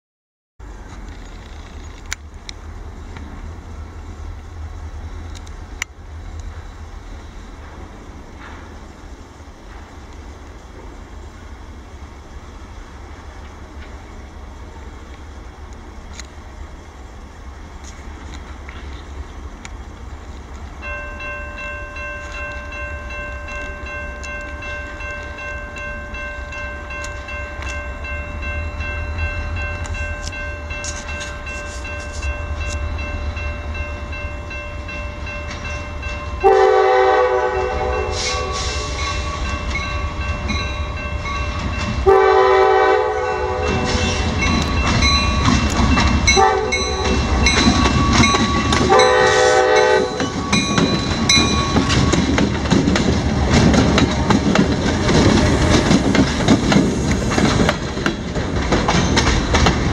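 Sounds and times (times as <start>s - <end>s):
diesel locomotives rumbling: 0.6s - 59.9s
locomotive air horn blasts: 36.4s - 39.5s, 42.0s - 44.3s, 46.3s - 47.3s, 48.9s - 50.4s.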